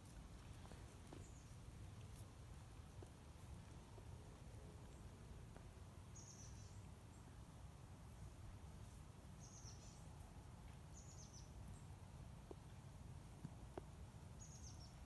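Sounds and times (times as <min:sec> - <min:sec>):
faint low rumble: 0:00.0 - 0:15.0
small bird high call: 0:09.4 - 0:10.0.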